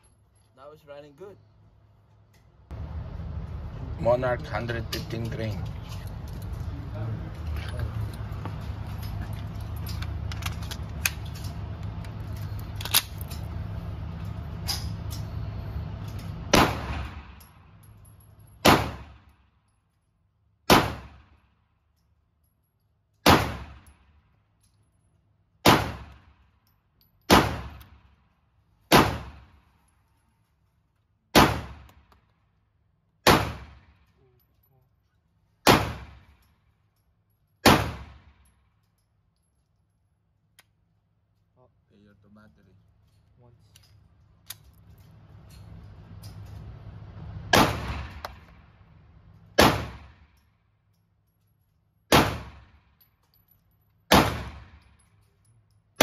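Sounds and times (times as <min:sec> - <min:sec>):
rattling handling noise: 0:07.4 - 0:15.4.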